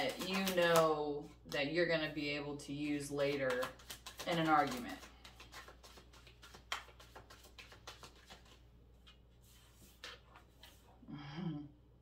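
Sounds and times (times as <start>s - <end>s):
cards shuffling: 0.0s - 1.0s, 2.8s - 10.9s.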